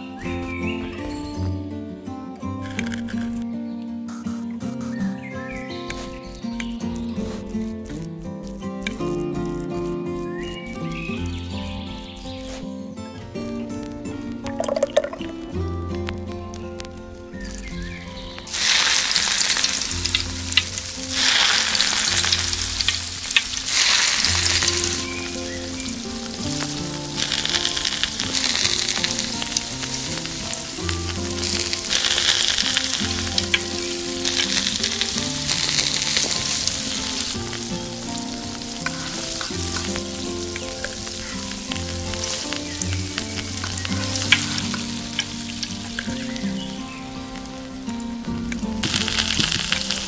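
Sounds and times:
fish frying in hot oil: 14.5 - 15.4, 17.5 - 47.4, 48.7 - 50.0.

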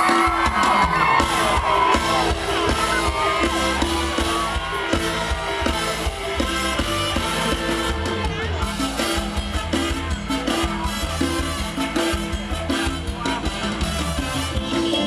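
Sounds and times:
crowd shouting and whooping: 0.0 - 11.0
live band music over pa: 0.0 - 15.0.

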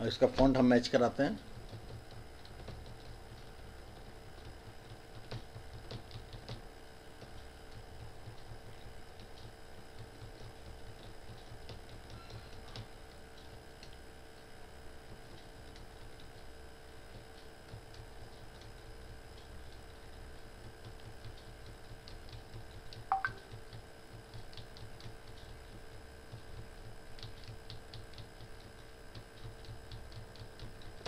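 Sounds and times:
keyboard keys clicking: 22.9 - 23.6.

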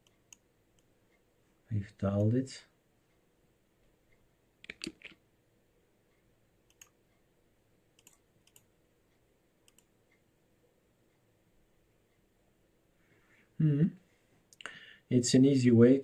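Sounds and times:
mouse clicks: 6.7 - 7.0, 8.0 - 8.7, 9.6 - 9.9.

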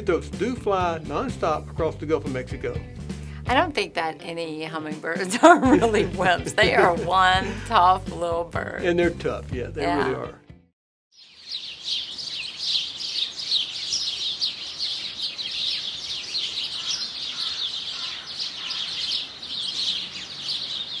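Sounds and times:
songbirds twittering: 11.1 - 21.0.

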